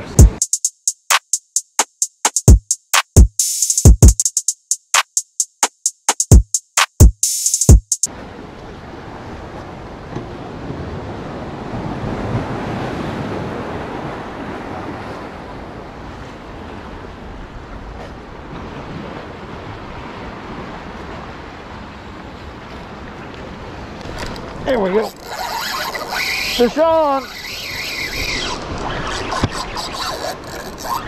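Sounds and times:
waves washing against pier: 8.1s - 31.0s.

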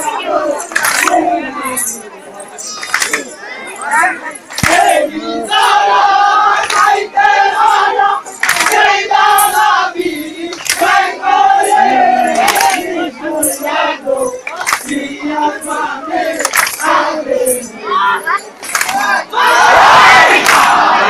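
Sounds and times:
group chanting in unison: 4.6s - 21.0s.

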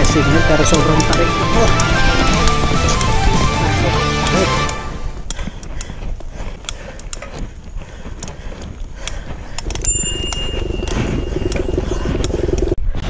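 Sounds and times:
bicycle ticking and clicking: 0.0s - 3.6s, 5.1s - 12.8s.

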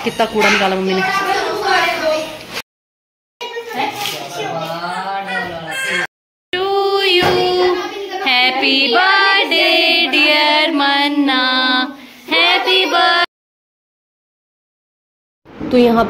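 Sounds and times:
high-pitched singing voice: 6.6s - 13.3s.

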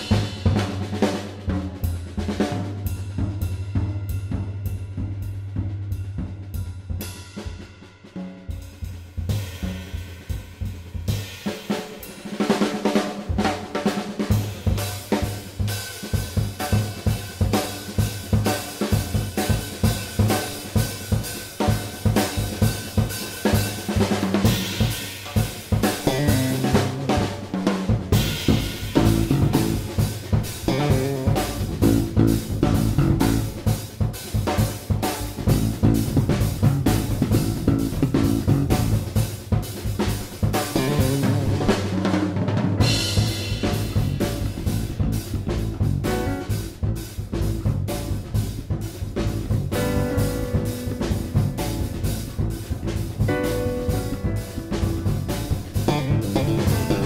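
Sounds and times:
drum-kit beat: 0.0s - 57.0s
bass line: 25.7s - 57.0s.

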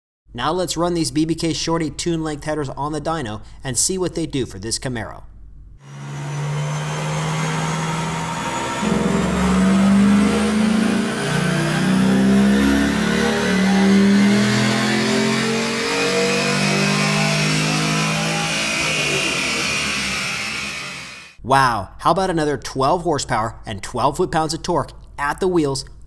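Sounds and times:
faint high whine: 5.8s - 21.3s
car engine revving under load: 5.8s - 21.4s.

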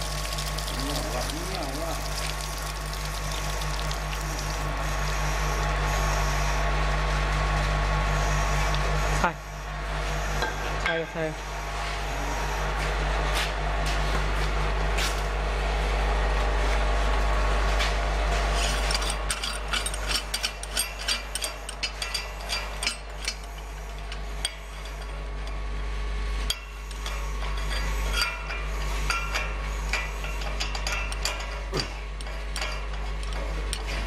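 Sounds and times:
metal parts clicking and scraping: 18.5s - 25.6s.

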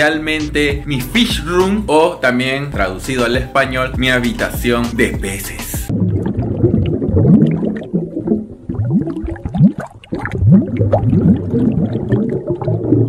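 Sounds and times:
underwater bubbles blooping: 5.9s - 13.0s.

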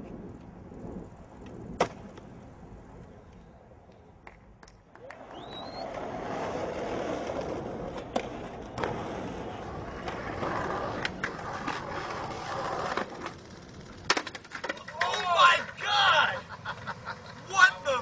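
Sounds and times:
skateboard wheels rolling on pavement: 0.0s - 18.0s
skateboard clacks: 3.9s - 15.8s.

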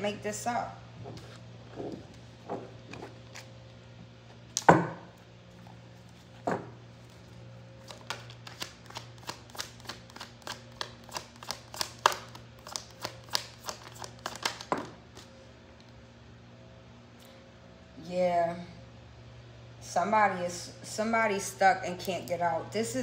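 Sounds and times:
cards being shuffled: 7.0s - 15.3s.

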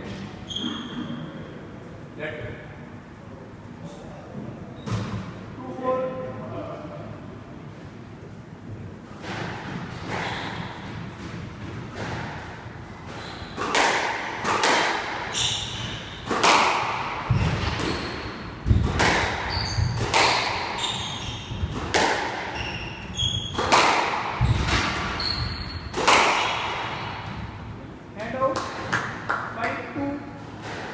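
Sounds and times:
squash ball hitting rackets and walls: 9.1s - 29.3s, 30.4s - 30.9s
shoes squeaking on wooden floor: 19.4s - 20.0s, 20.7s - 21.7s, 22.5s - 23.6s, 24.4s - 25.9s.

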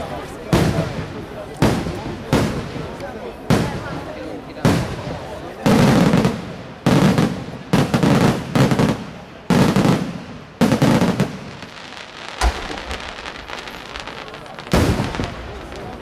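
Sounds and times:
firework shells bursting: 12.0s - 16.0s.

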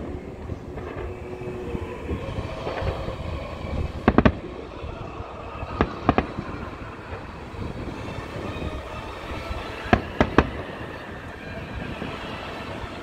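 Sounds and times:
fireworks bursting: 0.0s - 13.0s
steady background noise: 0.0s - 13.0s.

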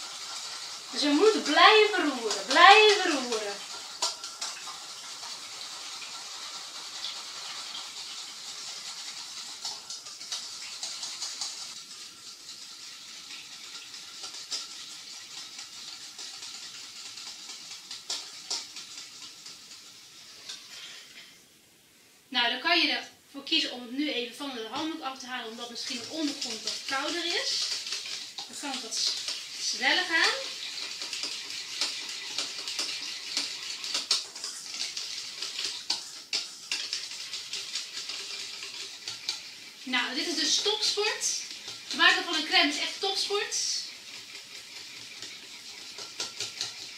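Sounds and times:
whisk swishing in bowl: 0.0s - 21.3s, 24.4s - 46.9s
utensil clicking against metal bowl: 13.7s - 19.8s, 30.3s - 39.6s, 43.9s - 46.9s.

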